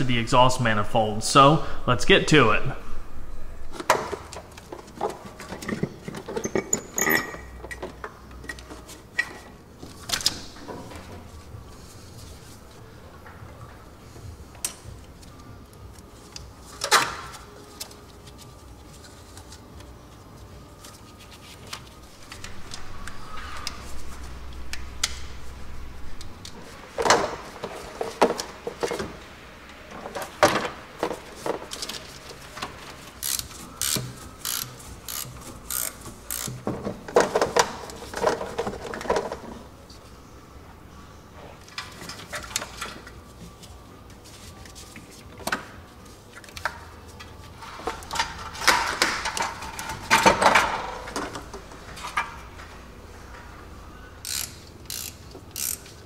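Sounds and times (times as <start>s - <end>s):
tools and metal parts clanking: 3.8s - 11.2s, 47.6s - 52.7s.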